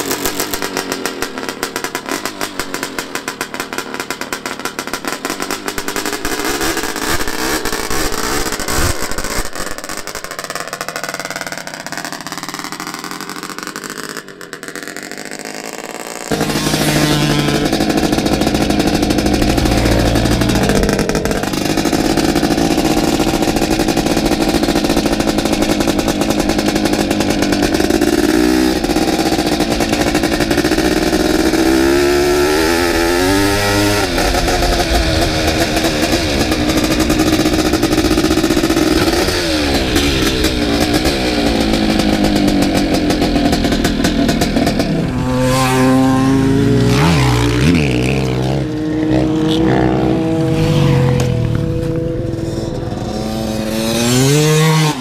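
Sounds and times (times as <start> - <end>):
dirt bike engine revving: 11.3 - 55.0.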